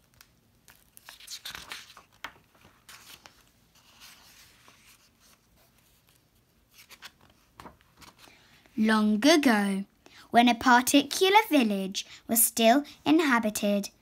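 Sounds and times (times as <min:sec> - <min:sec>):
book pages turning: 0:00.0 - 0:08.4
faint paper rustling: 0:00.0 - 0:08.8.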